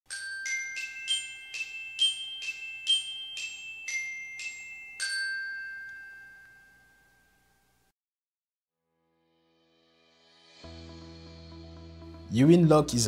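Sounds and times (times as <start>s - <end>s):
bell-like mallet percussion jingle: 0.1s - 7.8s.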